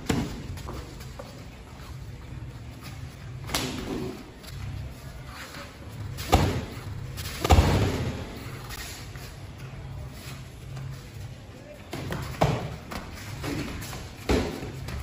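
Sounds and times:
gloved punches and kicks thudding: 0:06.2 - 0:08.3, 0:12.4 - 0:15.0.

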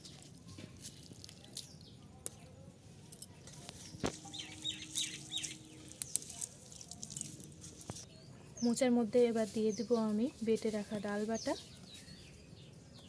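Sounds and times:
chickens calling: 0:03.8 - 0:07.1.

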